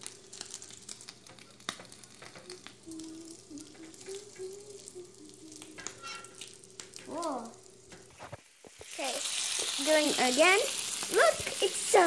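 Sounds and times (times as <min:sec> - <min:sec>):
bacon sizzling in a frying pan: 0:00.0 - 0:12.0.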